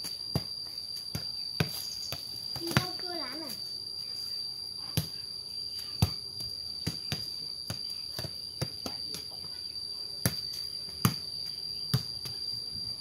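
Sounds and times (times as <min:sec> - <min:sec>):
ball kicked with bare feet: 0:00.0 - 0:03.5, 0:04.8 - 0:05.2, 0:05.8 - 0:09.5, 0:10.2 - 0:12.5
high insect drone: 0:00.0 - 0:13.0.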